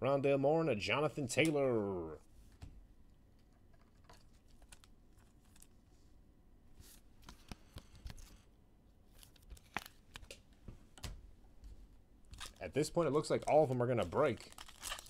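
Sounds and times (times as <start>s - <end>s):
trading cards rustling and clicking: 3.4s - 5.8s, 6.9s - 8.5s, 9.1s - 11.2s, 12.3s - 15.0s.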